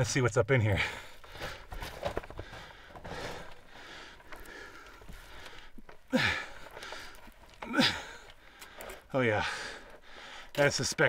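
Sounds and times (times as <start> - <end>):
man breathing: 0.8 - 10.6
man grunting: 7.7 - 8.1.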